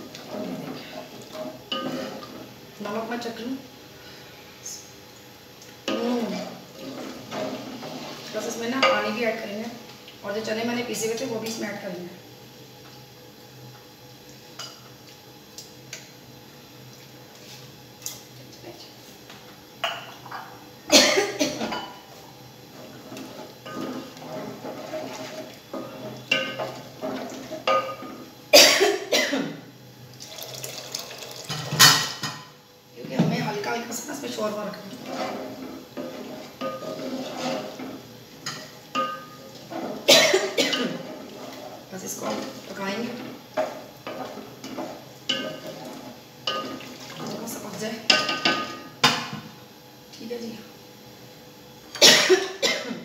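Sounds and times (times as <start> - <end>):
person coughing: 20.9 - 21.7, 28.6 - 29.6, 40.1 - 41.0, 52.0 - 53.0
metal ladle scraping a pot: 22.8 - 27.9, 34.9 - 40.1, 40.9 - 42.7
liquid sloshing: 45.6 - 47.6.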